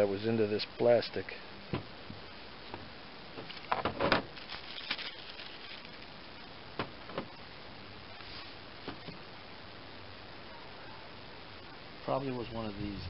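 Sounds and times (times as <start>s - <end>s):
small metal parts clicking: 4.4s - 6.0s.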